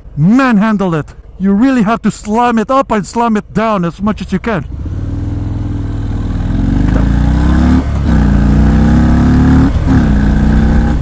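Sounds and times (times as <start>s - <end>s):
motorcycle engine accelerating: 4.7s - 11.0s.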